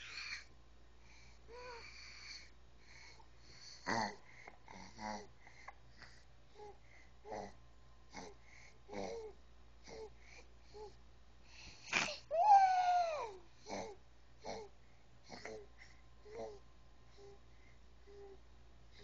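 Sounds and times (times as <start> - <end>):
baby's breathy sounds: 0.0 - 14.7
baby vocal sound falling in pitch: 12.1 - 13.4.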